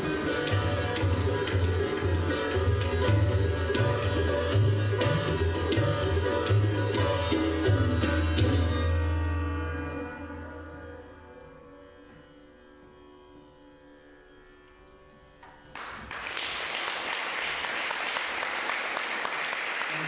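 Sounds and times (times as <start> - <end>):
sitar strings ringing: 0.0 - 15.7
audience applause: 15.7 - 20.0.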